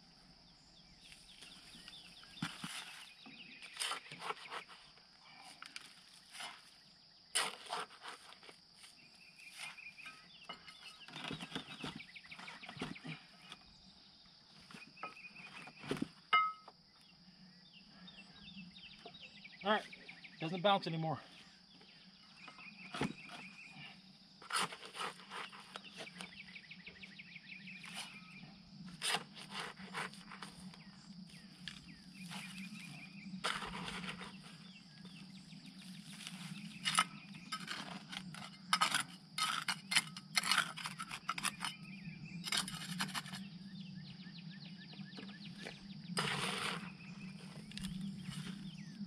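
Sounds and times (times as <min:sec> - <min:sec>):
insect chirping trills: 0:00.0 - 0:49.0
insect drone: 0:00.0 - 0:49.0
dirt rustling: 0:01.0 - 0:06.8, 0:28.9 - 0:41.8, 0:45.3 - 0:49.0
shovel scraping dirt: 0:01.1 - 0:04.9, 0:06.1 - 0:13.2, 0:22.8 - 0:26.4, 0:27.8 - 0:35.2, 0:35.8 - 0:43.5, 0:45.6 - 0:48.9.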